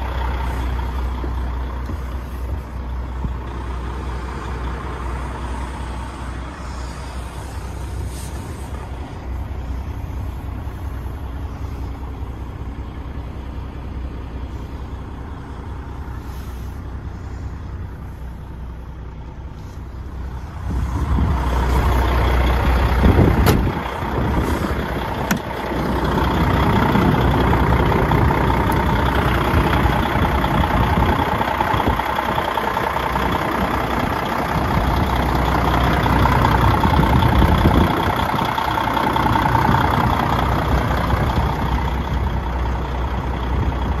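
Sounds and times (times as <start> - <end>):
diesel truck engine idling: 0.0 - 44.0.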